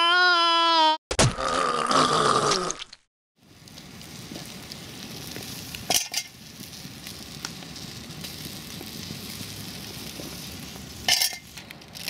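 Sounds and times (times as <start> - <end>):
sausages sizzling on a grill: 3.4 - 12.0
wood fire crackling: 3.4 - 12.0.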